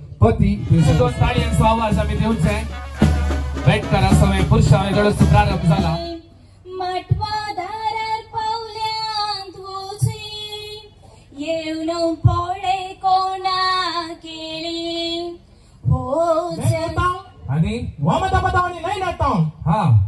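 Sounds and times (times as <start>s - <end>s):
woman singing unaccompanied: 5.8s - 17.2s.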